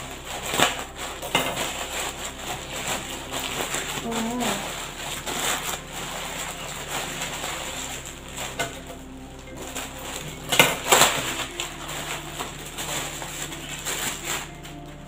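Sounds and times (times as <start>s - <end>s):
plastic bags crinkling: 0.0s - 15.0s.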